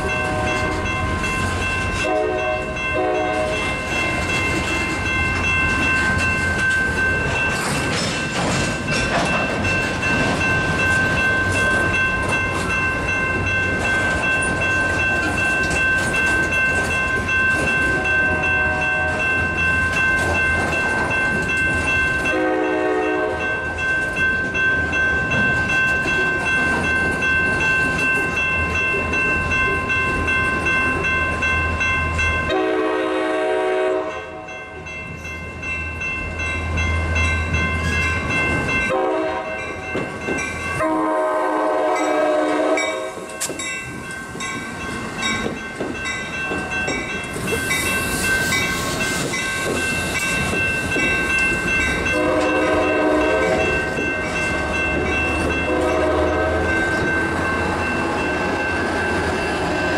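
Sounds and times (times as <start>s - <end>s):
train rumbling past: 0.0s - 59.9s
train horn blasts: 2.0s - 3.6s, 18.3s - 19.3s, 22.3s - 23.6s, 32.5s - 34.5s, 38.9s - 39.7s, 40.8s - 43.3s, 52.1s - 53.7s, 55.6s - 56.8s.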